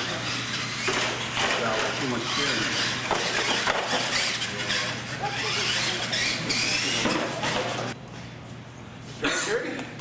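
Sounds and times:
electric motors whining: 0.0 - 8.0
voices in a hall: 1.5 - 8.0.

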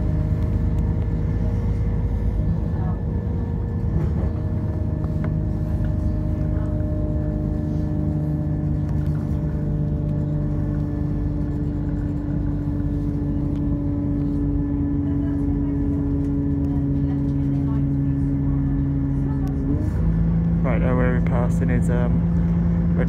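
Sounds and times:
train diesel engine droning: 0.0 - 23.0.

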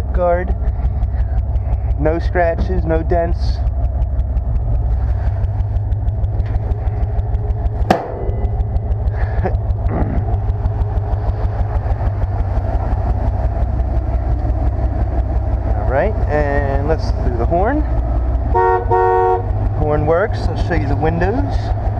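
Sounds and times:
truck engine idling: 0.0 - 21.9
sharp knocks: 6.4 - 8.8.

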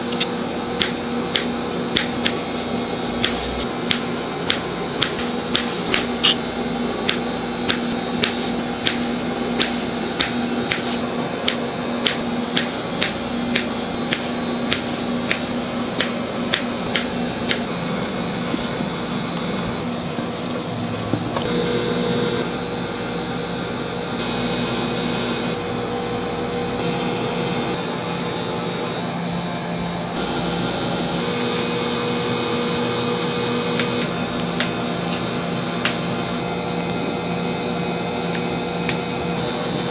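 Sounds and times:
steady mechanical hum: 0.0 - 39.9
knife tapping on cutting board: 9.6 - 15.4.

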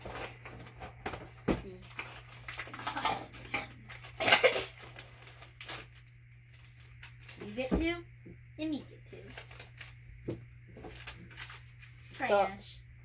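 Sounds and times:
plastic pouch crinkling: 1.8 - 3.0, 3.8 - 7.6, 9.2 - 10.0, 10.8 - 12.2.

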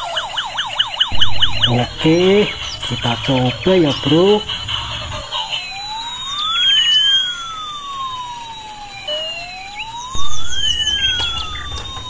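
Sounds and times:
toy siren wailing: 0.0 - 12.0
low rumble: 1.1 - 6.5, 10.2 - 12.0.

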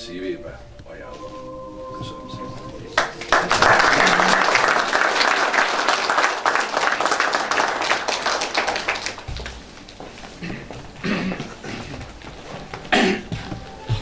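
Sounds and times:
audience applauding: 2.8 - 13.1.

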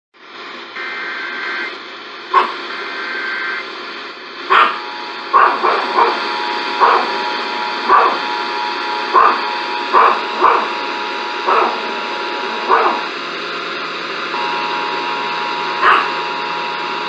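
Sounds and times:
radio hiss: 0.4 - 17.0
two-tone data warble: 4.4 - 13.2, 14.3 - 17.0
two-tone attention signal: 14.4 - 17.0.

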